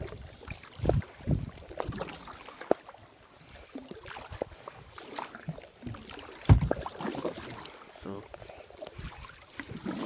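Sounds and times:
water splashing and dripping: 0:00.0 - 0:10.0.

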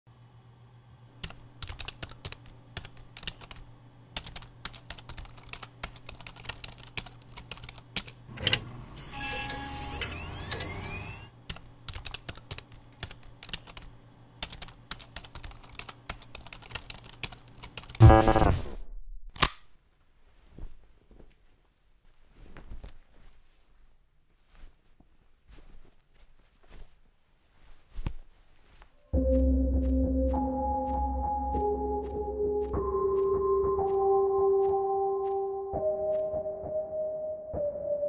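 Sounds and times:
fast typing on laptop keyboard: 0:01.2 - 0:08.2, 0:11.4 - 0:18.0
loud electronic buzzing: 0:18.0 - 0:18.9.

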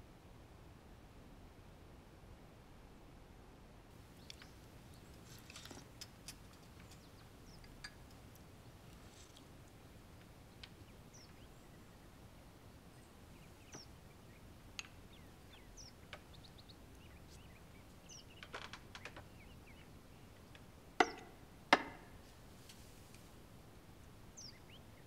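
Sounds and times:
faint birds chirping: 0:03.9 - 0:25.0
light clicks: 0:04.2 - 0:11.4.

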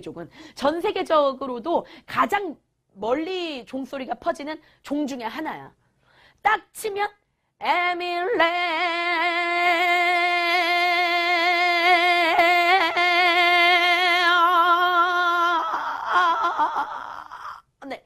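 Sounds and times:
woman singing long tone: 0:07.6 - 0:17.3.

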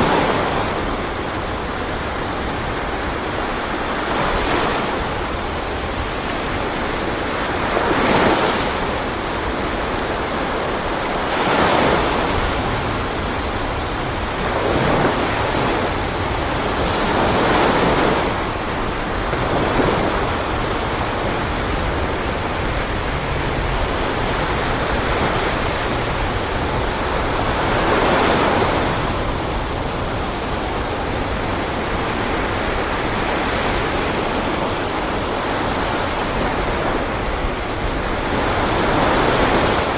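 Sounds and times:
ocean waves breaking: 0:00.0 - 0:39.9.

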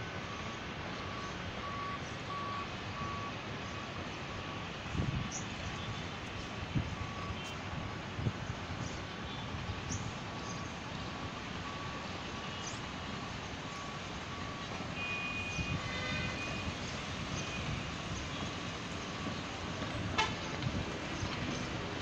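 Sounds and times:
vehicle running noise: 0:00.0 - 0:22.0
faint short beeps: 0:00.3 - 0:03.4.

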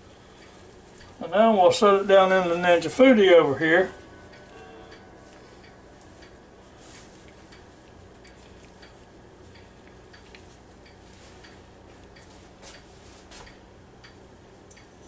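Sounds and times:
low hum: 0:00.0 - 0:15.0
faint ticking: 0:03.6 - 0:12.9, 0:13.5 - 0:15.0.

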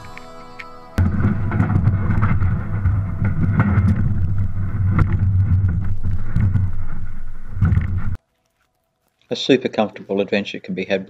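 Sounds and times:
kayak hull dragging rumble: 0:01.0 - 0:08.2
scraping knocks on hull: 0:01.0 - 0:08.2.

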